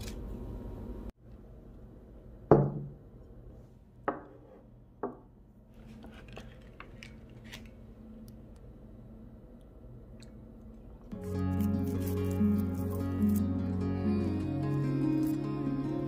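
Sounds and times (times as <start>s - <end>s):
ceramic knocking on wooden table: 4.1s - 4.4s, 5.0s - 5.2s.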